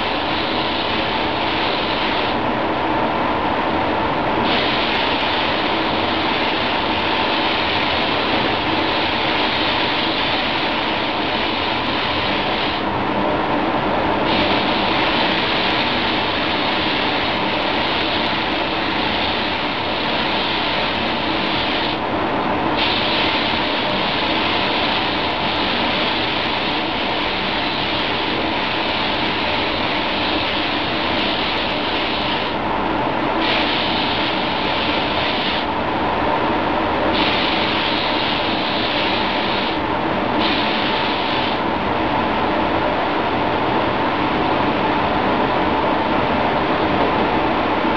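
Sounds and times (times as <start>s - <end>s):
paint spray gun hissing: 0.0s - 2.4s, 4.4s - 12.9s, 14.2s - 22.0s, 22.7s - 32.6s, 33.3s - 35.7s, 37.1s - 41.6s
ventilation hum: 0.0s - 47.9s.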